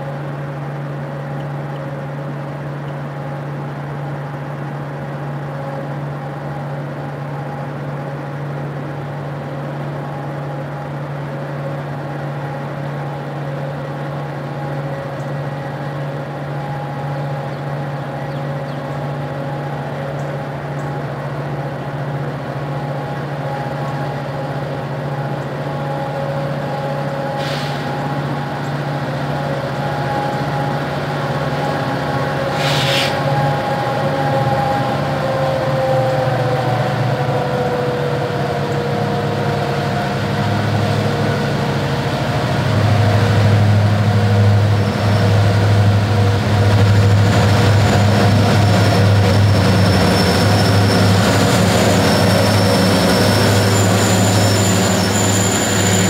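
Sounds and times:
diesel locomotive engine rumble: 0.0s - 56.0s
high whine: 14.5s - 56.0s
short hisses: 27.4s - 27.9s, 32.5s - 33.2s.

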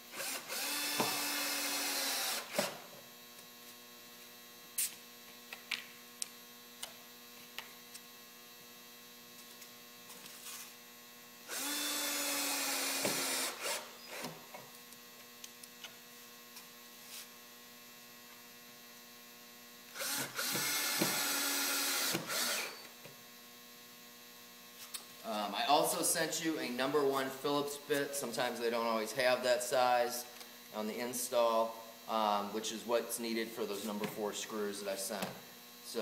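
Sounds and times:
faint electrical hum: 0.0s - 36.0s
cordless drill whirring: 0.1s - 2.8s, 11.5s - 14.4s, 19.9s - 22.9s.

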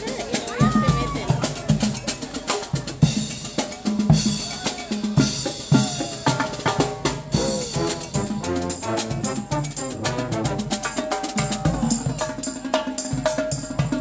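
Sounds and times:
snare drum marching beat: 0.4s - 14.0s
bass drum beats: 5.2s - 10.8s.

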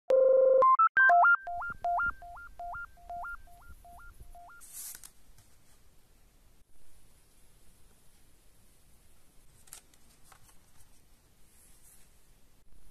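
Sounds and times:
synthesizer jingle: 0.1s - 4.6s.

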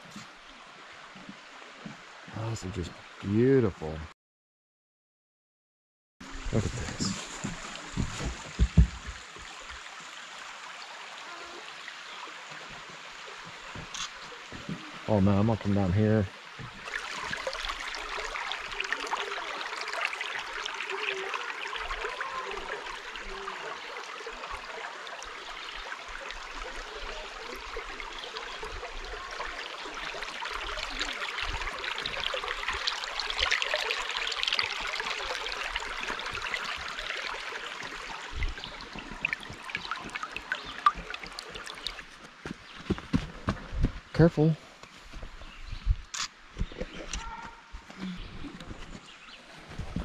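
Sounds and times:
creek babbling over rocks: 6.3s - 42.8s.

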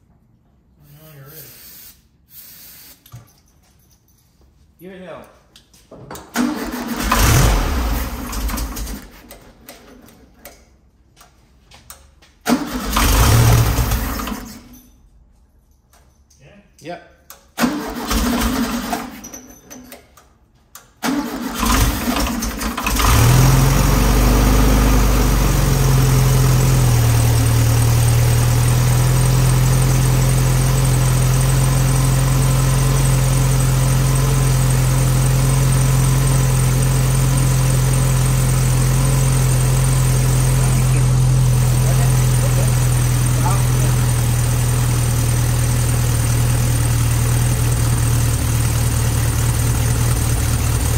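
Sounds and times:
car engine cranking and idling: 6.2s - 11.4s, 12.4s - 14.8s, 17.3s - 19.3s, 20.8s - 50.9s.

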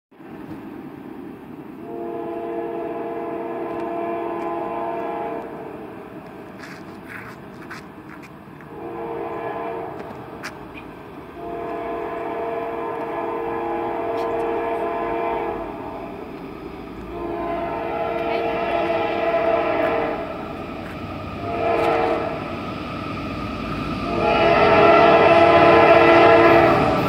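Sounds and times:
train rumble: 0.1s - 27.0s
locomotive air horn: 1.8s - 5.9s, 8.7s - 10.5s, 11.3s - 16.0s, 17.1s - 20.4s, 21.4s - 22.5s, 24.0s - 27.0s.

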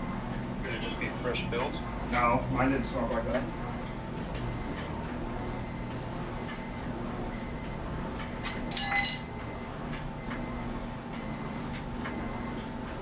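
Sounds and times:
short metallic clink: 8.4s - 9.3s.

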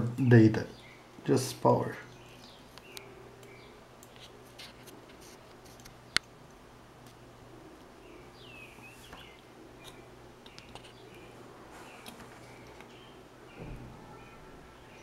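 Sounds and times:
low steady hum: 0.0s - 15.0s
faint high chirps: 8.1s - 15.0s.

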